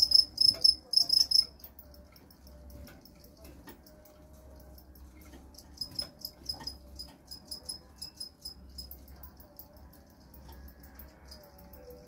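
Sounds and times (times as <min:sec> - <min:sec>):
crickets chirping: 0:00.0 - 0:04.8, 0:05.5 - 0:12.0.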